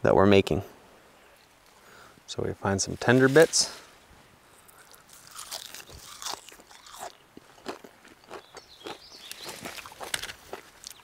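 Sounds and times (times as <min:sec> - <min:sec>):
person chewing crisp shoot: 0:04.6 - 0:11.0.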